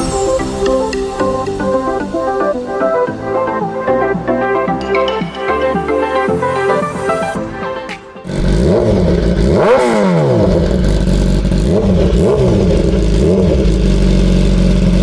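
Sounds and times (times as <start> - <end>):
song: 0.0 - 9.1
motorcycle engine revving: 8.2 - 15.0.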